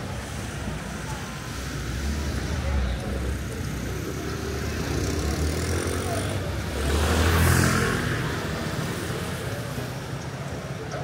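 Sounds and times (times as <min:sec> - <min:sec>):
low traffic rumble: 0:00.0 - 0:11.0.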